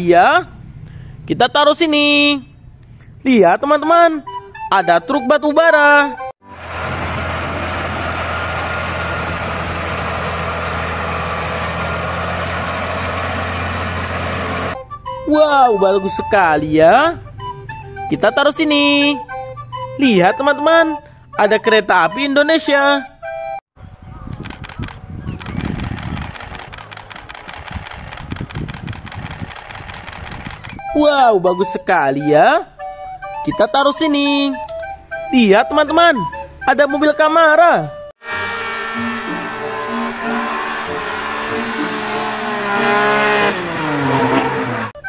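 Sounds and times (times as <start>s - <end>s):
locomotive engine rumble: 6.4s - 14.8s
truck diesel engine running: 6.4s - 14.8s, 24.4s - 30.8s, 38.2s - 44.9s.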